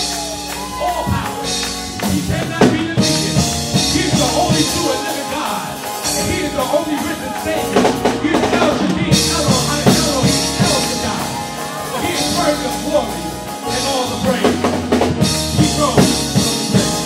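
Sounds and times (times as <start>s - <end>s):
keyboard: 0.0s - 17.0s
vocal group singing: 1.0s - 13.1s.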